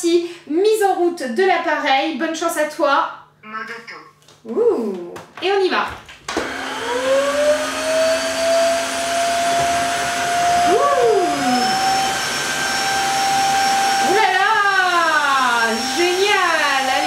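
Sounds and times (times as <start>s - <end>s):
vacuum mop motor whine: 6.3s - 17.0s.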